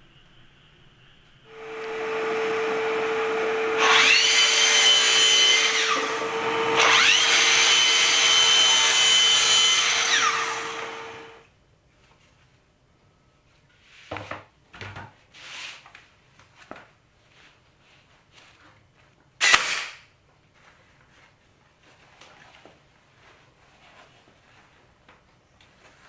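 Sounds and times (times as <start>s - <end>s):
electric power tool humming: 1.5s - 11.4s.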